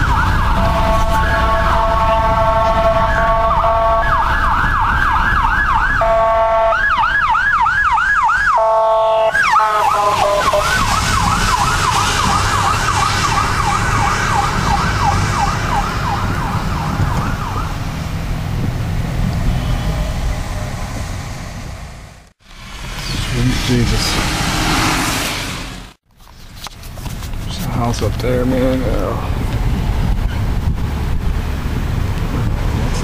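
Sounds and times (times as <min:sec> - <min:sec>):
horn-like siren blasts: 0:00.0 - 0:17.8, 0:19.4 - 0:20.9
siren yelping: 0:00.0 - 0:17.8
car rumble: 0:00.0 - 0:33.0.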